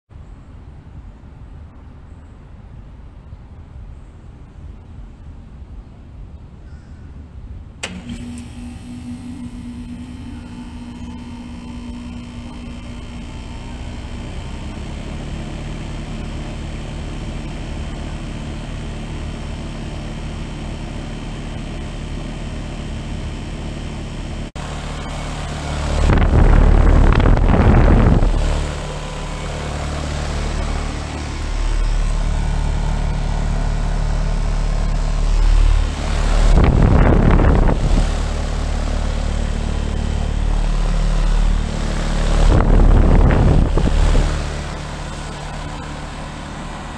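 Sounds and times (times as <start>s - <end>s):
heat pump humming: 7.8s - 46.9s
air rushing across microphone: 24.6s - 32.6s, 34.2s - 46.9s.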